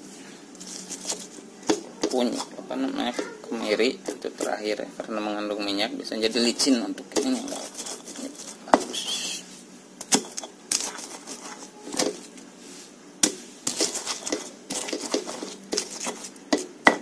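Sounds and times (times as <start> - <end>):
pestle scraping and crushing: 0.6 - 4.8, 6.4 - 9.4, 10.0 - 12.4, 13.2 - 17.0
stone pestle knocking mortar: 16.5 - 17.0.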